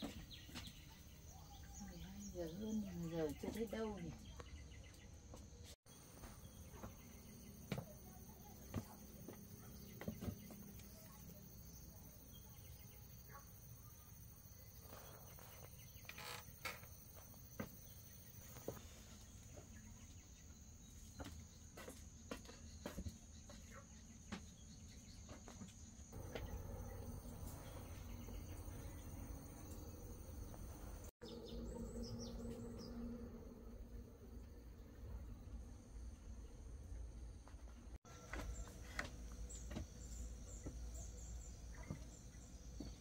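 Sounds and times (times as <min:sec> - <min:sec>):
insects trilling: 0:06.2 - 0:18.8, 0:25.5 - 0:37.5.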